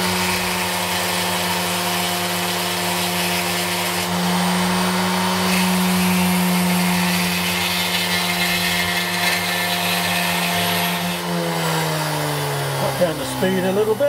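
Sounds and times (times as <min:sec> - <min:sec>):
bench grinder motor hum: 0:00.0 - 0:14.0
gritty grinding on slate: 0:05.3 - 0:12.0.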